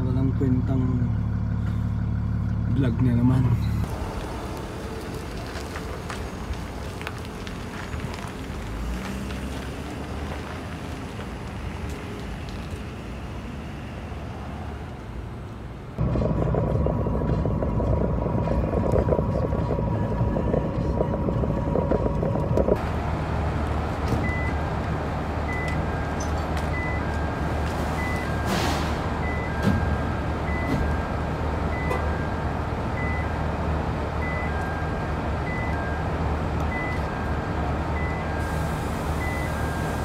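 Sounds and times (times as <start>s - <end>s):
low engine hum: 0.0s - 40.0s
road rumble inside truck cab: 0.0s - 40.0s
forklift alarm beeping: 24.2s - 24.6s, 25.4s - 33.5s, 34.2s - 40.0s.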